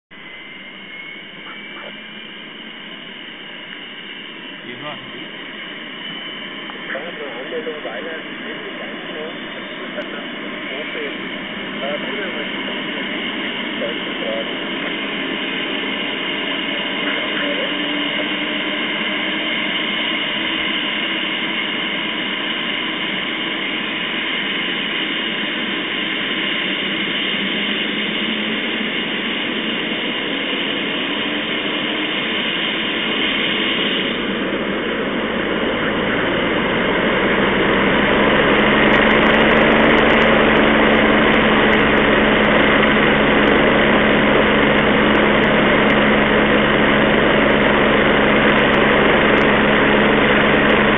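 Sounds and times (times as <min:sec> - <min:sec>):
helicopter turbine engine whine: 0:00.1 - 0:50.9.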